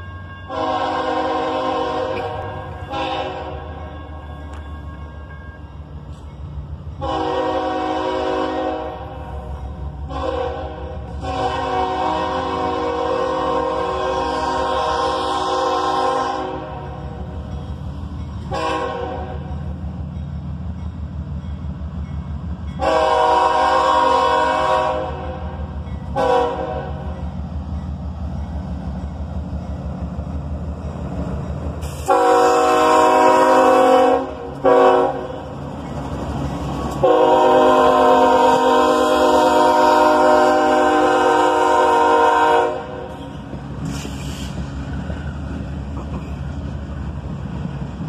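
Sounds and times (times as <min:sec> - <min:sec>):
train rumble: 0:00.0 - 0:48.0
locomotive air horn blasts: 0:00.5 - 0:03.8, 0:07.0 - 0:09.3, 0:10.0 - 0:17.1, 0:18.5 - 0:19.5, 0:22.8 - 0:27.1, 0:32.0 - 0:35.4, 0:37.0 - 0:43.1.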